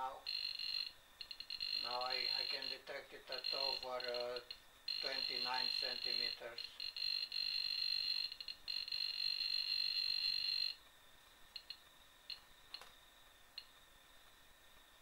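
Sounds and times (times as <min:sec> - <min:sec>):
metal detector high-pitched tone: 0:00.0 - 0:10.8.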